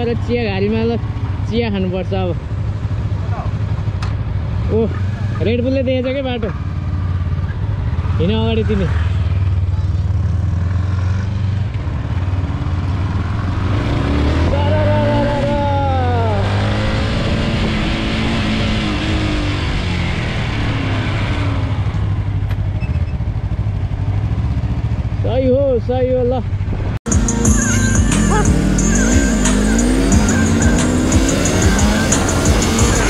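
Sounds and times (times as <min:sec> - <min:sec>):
motorcycle engine revving: 0:00.0 - 0:25.3, 0:26.3 - 0:33.0
wind rushing over microphone: 0:16.3 - 0:21.8, 0:26.5 - 0:27.1.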